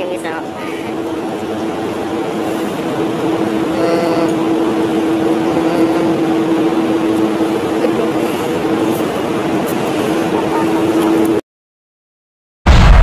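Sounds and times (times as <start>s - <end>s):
steady motor drone: 0.0s - 11.4s.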